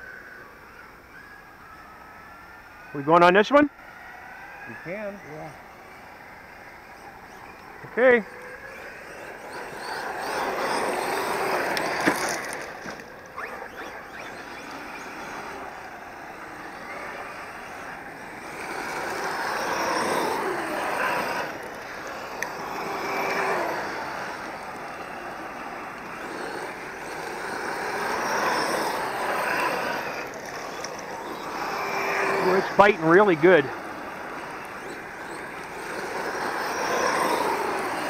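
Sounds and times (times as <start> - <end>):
rc car motor whine: 0.0 - 38.0
tyres on dirt: 1.2 - 38.0
sharp ticks: 9.5 - 16.0, 33.8 - 38.0.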